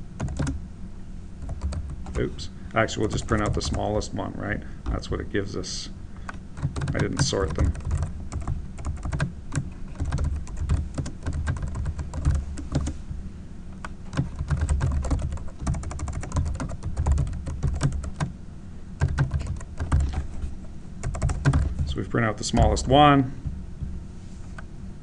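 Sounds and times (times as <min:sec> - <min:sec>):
keyboard typing: 0:00.2 - 0:00.6, 0:01.4 - 0:02.2, 0:03.1 - 0:03.9, 0:06.3 - 0:13.0, 0:13.8 - 0:18.3, 0:19.0 - 0:20.3, 0:21.0 - 0:22.0.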